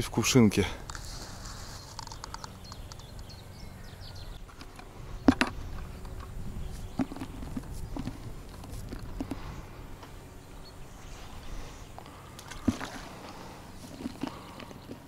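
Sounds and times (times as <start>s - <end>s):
small clicks: 1.8s - 3.4s.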